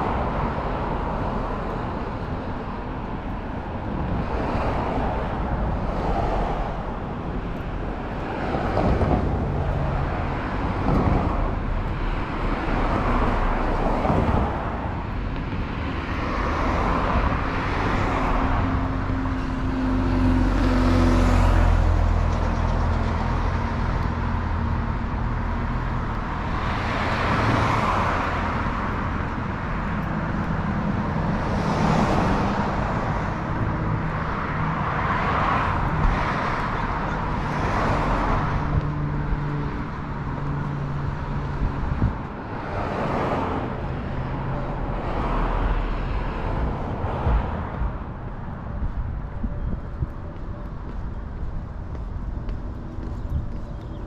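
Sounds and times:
cars passing: 0.0s - 54.0s.

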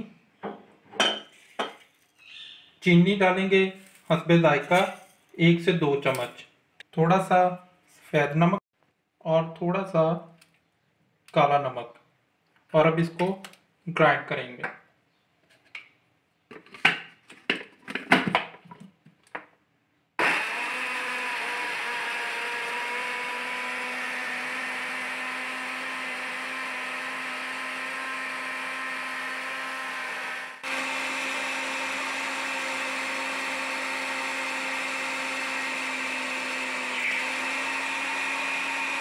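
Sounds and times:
blender motor humming: 20.2s - 39.0s.

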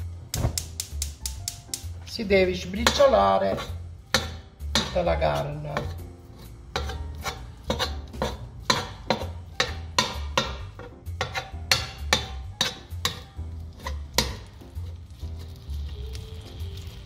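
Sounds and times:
background music with low beat: 0.0s - 17.0s
utensil striking steel pot: 0.3s - 2.0s, 2.6s - 6.0s, 6.7s - 14.6s.

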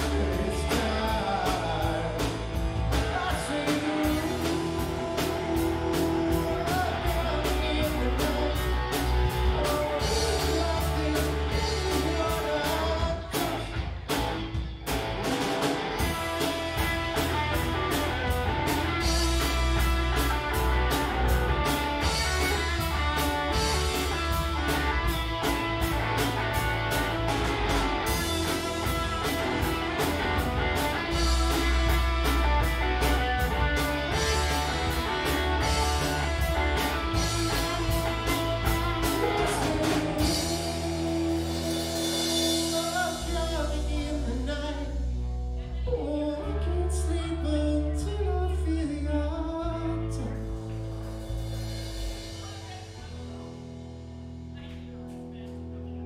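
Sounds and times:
person singing: 0.0s - 13.8s, 27.7s - 50.6s
live rock band playing: 0.0s - 56.0s.

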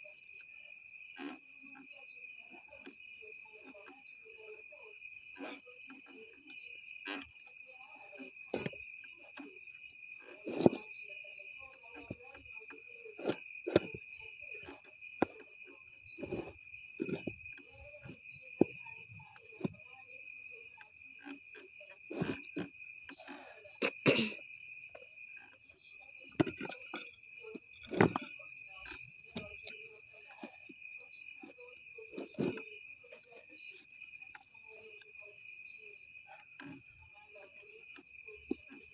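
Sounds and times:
crickets chirping: 0.0s - 38.9s
wooden stick scraping metal pot: 5.3s - 24.0s, 25.3s - 30.6s, 32.0s - 32.8s.

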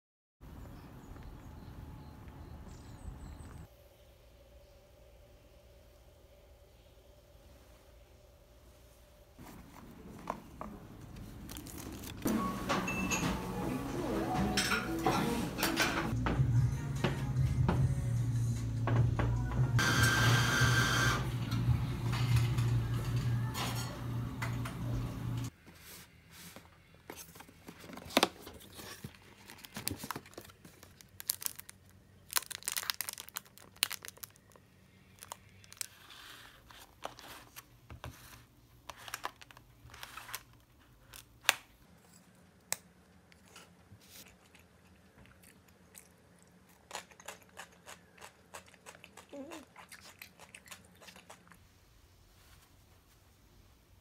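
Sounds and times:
plastic containers clicking and crinkling: 27.1s - 34.6s.

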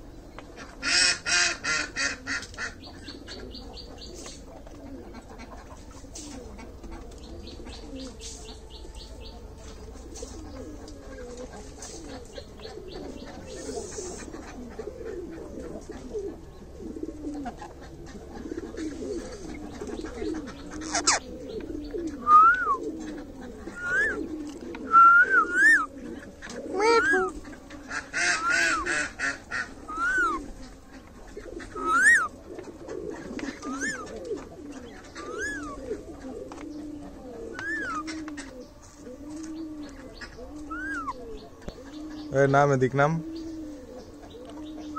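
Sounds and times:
low warbling bird calls: 0.9s - 44.9s
parakeet squawk: 20.8s - 21.2s
parakeet whistled calls: 31.8s - 32.3s, 37.6s - 38.0s, 40.7s - 41.2s.

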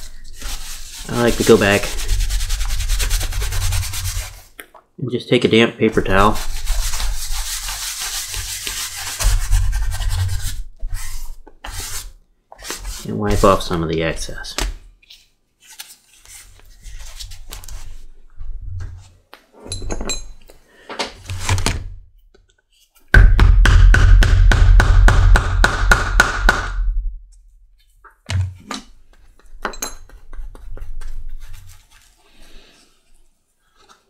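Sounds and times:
paper towel rubbing leather: 0.0s - 4.5s, 6.0s - 14.3s.

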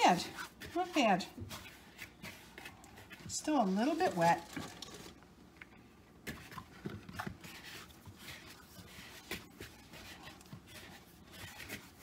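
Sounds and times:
hands kneading dough: 0.0s - 12.0s.

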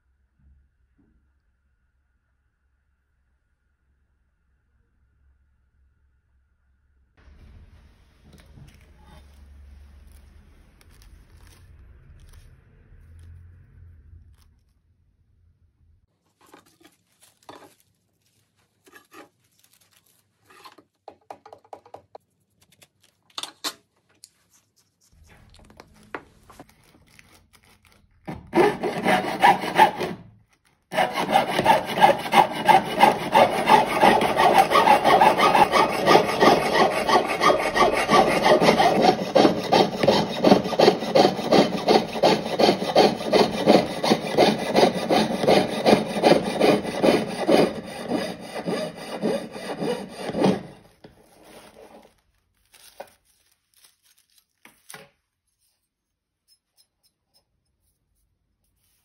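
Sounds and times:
piercing saw cutting metal sheet: 28.3s - 30.3s, 30.9s - 50.9s.

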